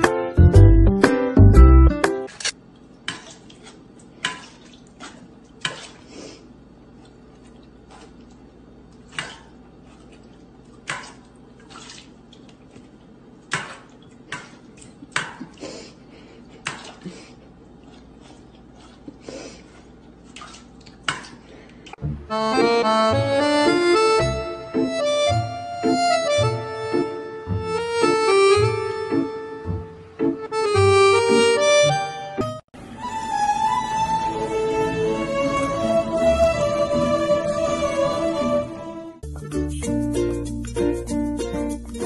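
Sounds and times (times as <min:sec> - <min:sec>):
accordion music: 0:00.0 - 0:02.3, 0:22.0 - 0:42.0.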